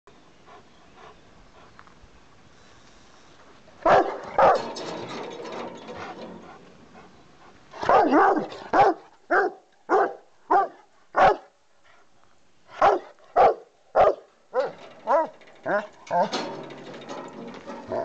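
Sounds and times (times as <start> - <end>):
dog barking: 3.9 - 4.6, 7.8 - 11.5, 12.8 - 15.3.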